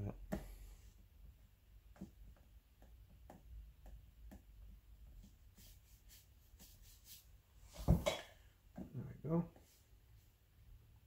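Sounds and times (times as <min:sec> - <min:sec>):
brush dabbing on paper: 0:02.8 - 0:07.8.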